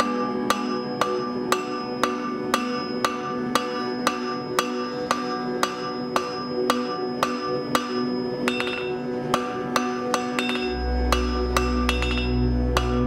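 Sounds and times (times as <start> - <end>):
hammer striking steel on anvil: 0.0 - 13.0
metallic ringing: 0.0 - 13.0.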